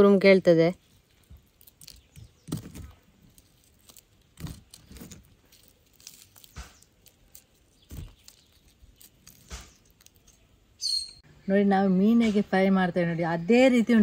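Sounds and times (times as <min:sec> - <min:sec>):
fried food crunching: 0:01.0 - 0:10.6.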